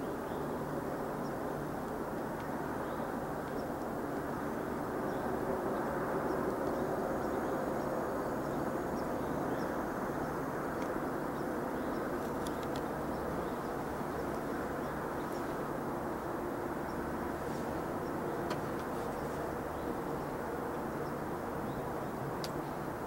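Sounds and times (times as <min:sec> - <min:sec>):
low rumbling background noise: 0:00.0 - 0:23.0
faint clicks: 0:12.2 - 0:12.9.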